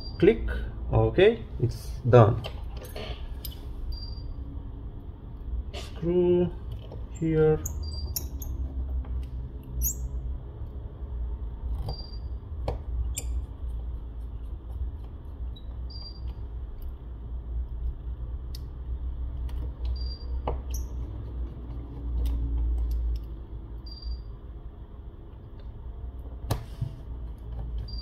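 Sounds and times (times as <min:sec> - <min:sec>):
small clicks and taps on metal: 0:21.7 - 0:23.4.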